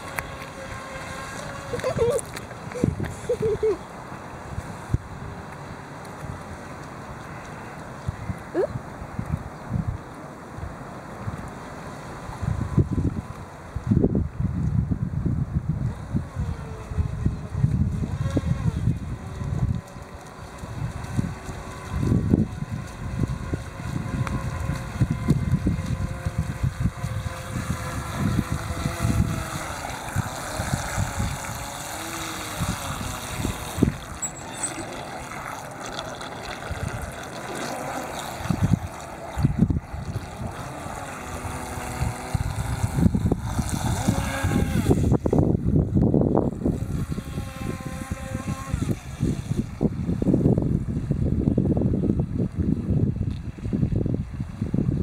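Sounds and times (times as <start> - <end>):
boat electric motor whining: 0.0 - 4.4, 15.8 - 51.3
wind rumble on microphone: 0.0 - 55.0.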